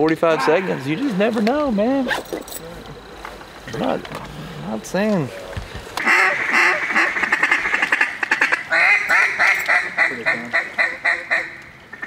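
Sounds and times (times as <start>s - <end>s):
duck call quacks: 6.0s - 12.0s.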